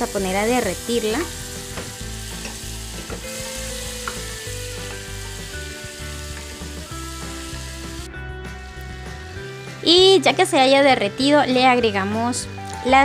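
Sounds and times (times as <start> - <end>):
butter sizzling in saucepan: 0.0 - 10.5
spoon tapping pan: 1.8 - 5.4.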